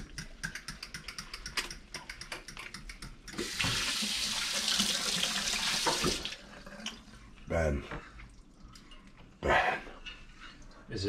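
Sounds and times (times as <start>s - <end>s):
water running into sink: 3.4s - 6.9s.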